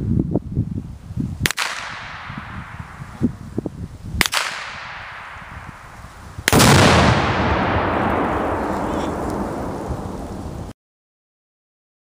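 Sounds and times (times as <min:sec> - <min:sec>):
sharp gunshot crack: 0:01.4 - 0:03.0, 0:04.2 - 0:05.8, 0:06.4 - 0:10.6
rolling echo: 0:01.5 - 0:03.4, 0:04.2 - 0:10.7
loud explosion blast: 0:06.4 - 0:10.7.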